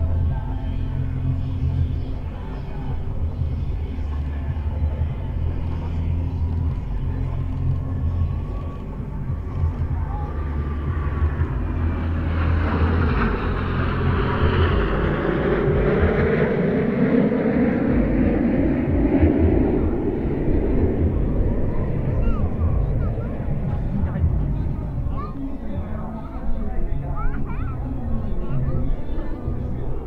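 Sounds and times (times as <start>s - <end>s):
jet aircraft flying overhead: 0.0s - 30.0s.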